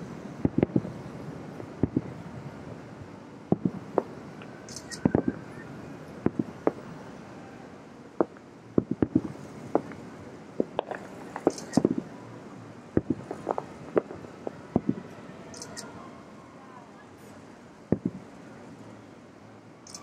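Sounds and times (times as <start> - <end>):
distant fireworks booming: 0.0 - 12.2, 12.9 - 15.4, 17.9 - 18.6
background hum: 0.0 - 20.0.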